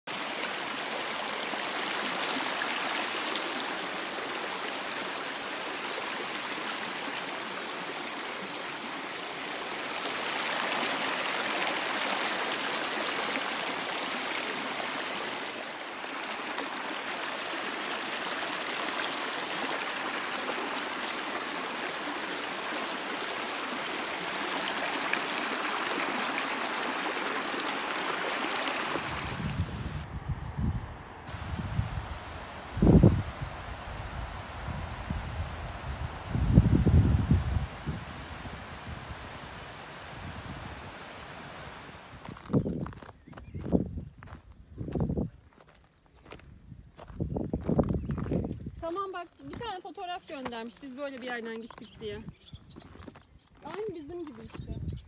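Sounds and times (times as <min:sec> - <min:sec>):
stream flowing over stones: 0:00.1 - 0:30.0, 0:31.3 - 0:43.0.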